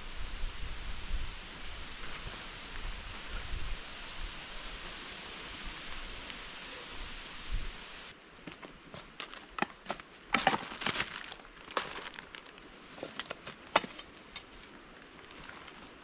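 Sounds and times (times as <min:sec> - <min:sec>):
crinkling and rustling: 0:08.4 - 0:16.0.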